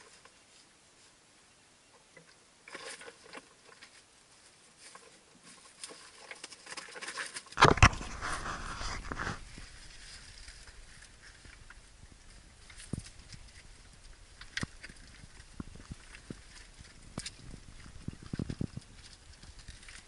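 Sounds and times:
rustling: 0.0s - 20.0s.

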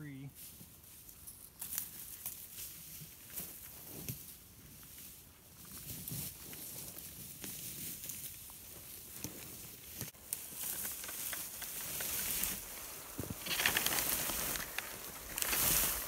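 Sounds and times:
barbed wire scraping through brush: 10.3s - 16.0s.

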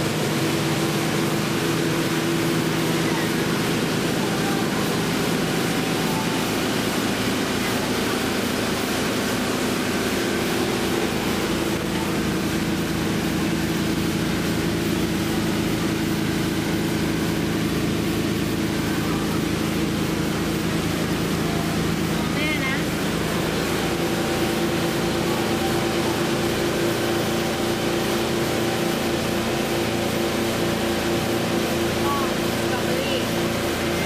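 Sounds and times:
motorboat engine drone: 0.0s - 34.0s.

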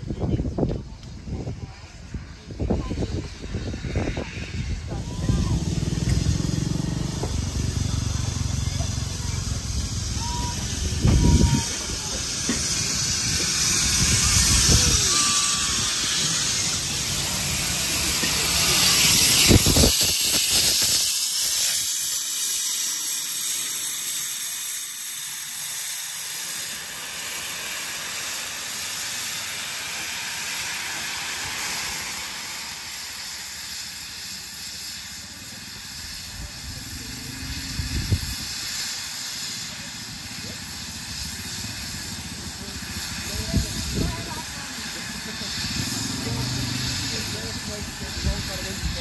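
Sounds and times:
steam locomotive hissing: 0.0s - 49.0s.

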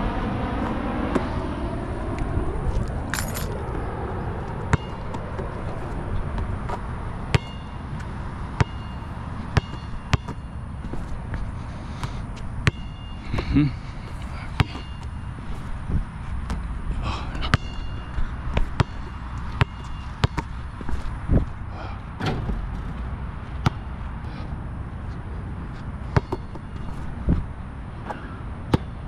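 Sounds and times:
low rumble: 0.0s - 25.6s
basketball bouncing with ping: 4.7s - 5.2s, 6.4s - 11.1s, 12.0s - 13.6s, 14.6s - 15.3s, 17.4s - 20.6s, 23.6s - 23.9s, 26.1s - 27.0s, 28.1s - 29.0s.

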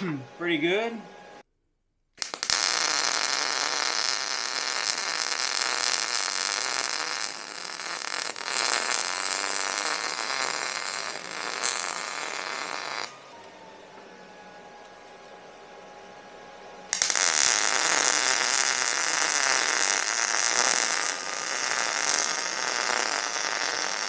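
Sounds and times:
welding arc crackling: 2.2s - 13.2s, 16.9s - 24.0s.

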